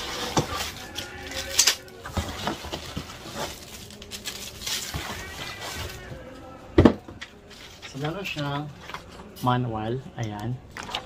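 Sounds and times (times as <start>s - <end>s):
cardboard box rustling: 0.0s - 6.1s.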